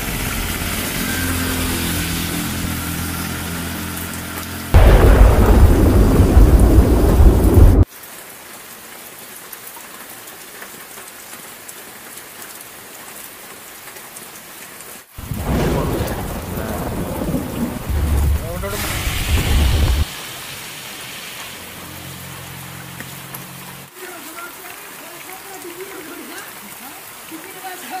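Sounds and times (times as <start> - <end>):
heavy rain falling: 0.0 - 28.0
thunder rumbling: 4.8 - 7.9, 15.2 - 20.1.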